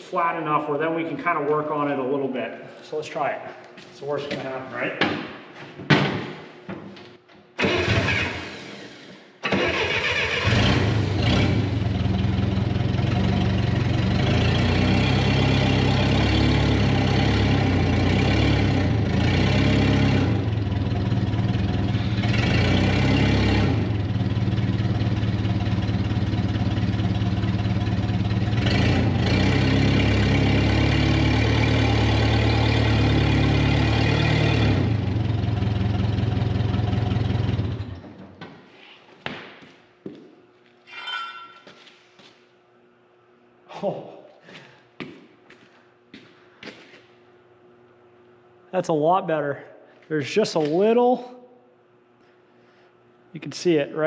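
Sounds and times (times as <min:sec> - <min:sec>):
heavy vehicle engine running: 0:10.9 - 0:38.0.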